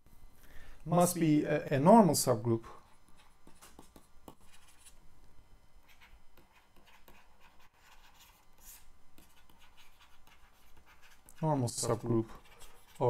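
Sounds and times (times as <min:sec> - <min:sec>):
stylus scratching on tablet: 0:02.8 - 0:05.0, 0:05.8 - 0:13.0.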